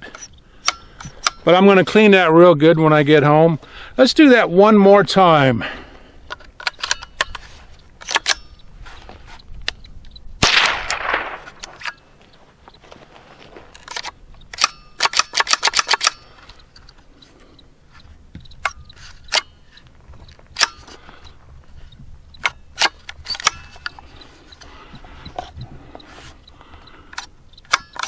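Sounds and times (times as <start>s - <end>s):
rifle action clicking: 6.3s - 7.4s, 8.0s - 8.6s, 9.6s - 12.1s, 13.8s - 17.0s, 20.5s - 21.0s, 22.4s - 24.7s, 26.8s - 28.0s.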